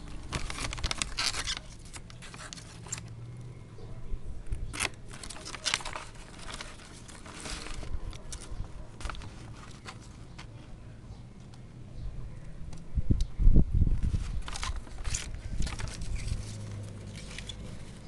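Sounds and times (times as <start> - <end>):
scissors snipping paper: 4.7 - 10.2.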